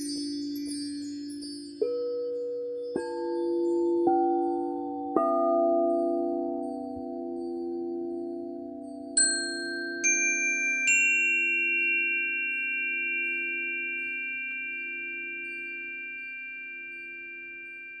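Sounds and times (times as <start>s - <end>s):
crystal singing bowl hum: 0.0s - 18.0s
metal chime bars ringing: 9.2s - 18.0s.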